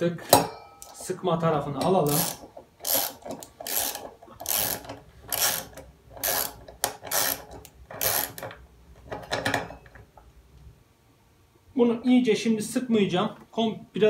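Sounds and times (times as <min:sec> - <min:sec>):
ratchet wrench clicking: 0:02.0 - 0:08.5.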